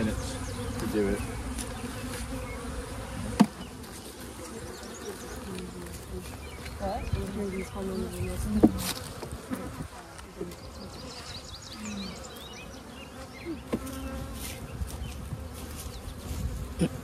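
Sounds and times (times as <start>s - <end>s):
honeybees buzzing: 0.0s - 17.0s
hive tool knocking wooden frames: 3.1s - 3.9s, 8.4s - 10.0s, 13.6s - 14.2s.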